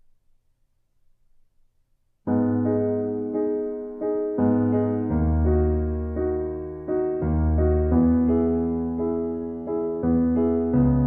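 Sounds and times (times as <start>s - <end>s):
slow piano piece: 2.2s - 11.0s.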